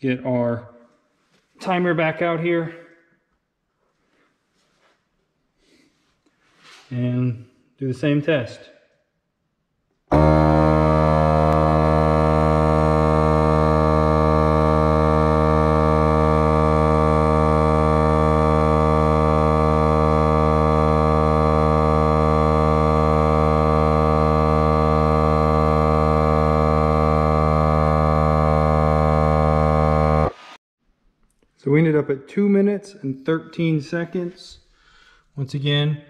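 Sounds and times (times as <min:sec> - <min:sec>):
tire inflator compressor running: 0:11.5 - 0:30.6.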